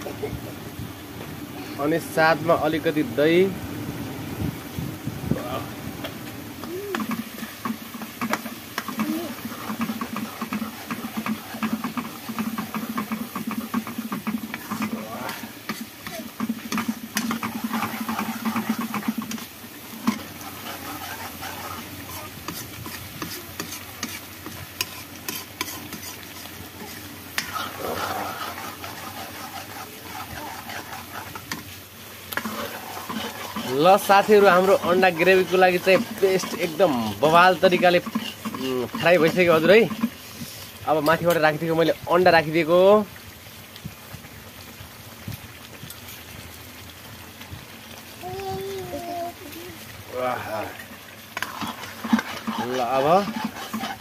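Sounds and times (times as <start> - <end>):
oil sizzling: 0.0 - 54.0
metal spatula scraping a pan: 6.9 - 41.4, 51.3 - 54.0.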